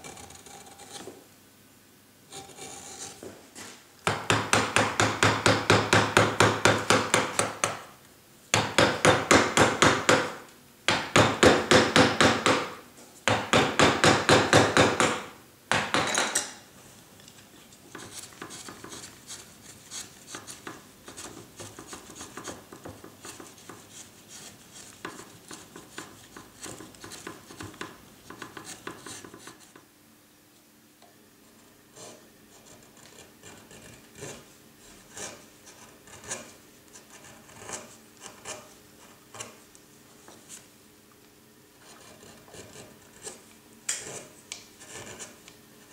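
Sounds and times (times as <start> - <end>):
carving tools on wood: 0.0 - 1.2, 4.0 - 7.9, 8.6 - 12.7, 13.3 - 16.4, 17.2 - 29.8, 31.9 - 39.6, 41.8 - 45.9.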